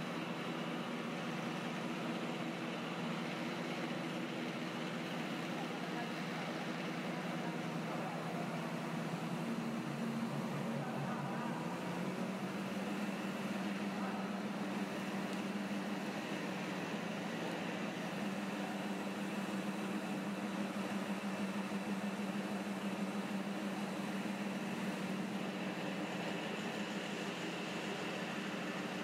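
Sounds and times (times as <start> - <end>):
extruder machine hum: 0.0 - 29.0.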